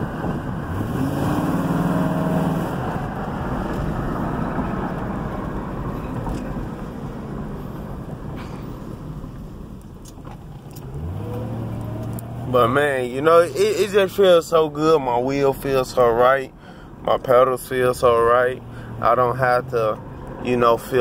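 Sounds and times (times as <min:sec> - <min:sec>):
car engine from inside cabin: 0:00.0 - 0:16.2
road noise: 0:00.0 - 0:21.0.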